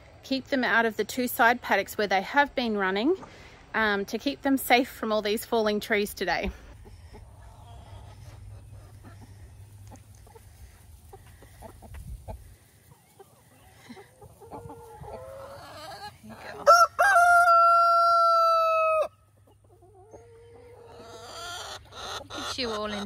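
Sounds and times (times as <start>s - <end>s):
chickens clucking: 0.6s - 23.0s
rooster crowing: 16.6s - 19.1s.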